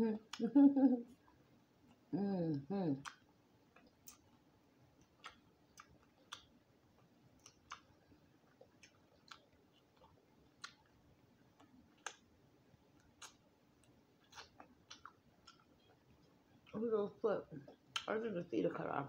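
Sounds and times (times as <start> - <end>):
wet mouth clicks and lip smacks: 3.0 - 4.3, 5.0 - 6.5, 7.4 - 7.9, 8.6 - 10.9, 13.0 - 16.0, 17.8 - 18.1.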